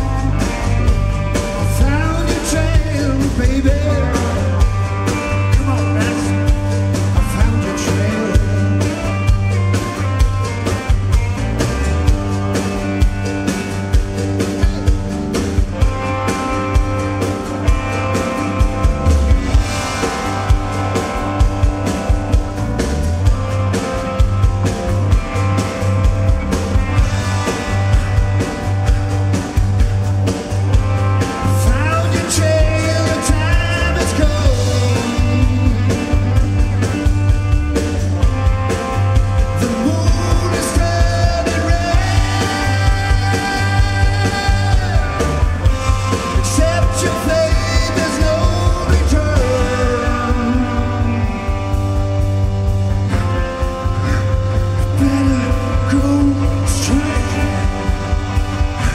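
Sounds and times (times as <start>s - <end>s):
bass guitar: 0.0s - 58.9s
drum kit beat: 0.0s - 58.9s
electric guitar: 0.0s - 58.9s
person singing: 1.4s - 9.2s, 31.4s - 36.5s, 39.6s - 51.8s, 54.0s - 58.9s.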